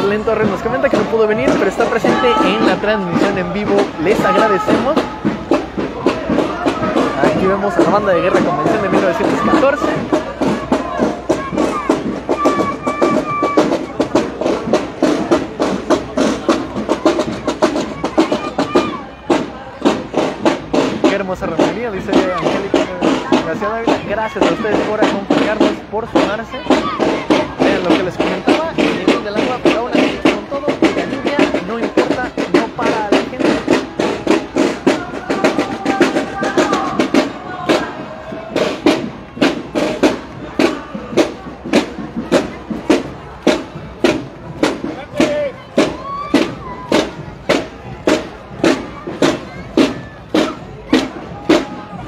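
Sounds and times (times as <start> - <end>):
marching drums beating cadence: 0.0 - 52.0.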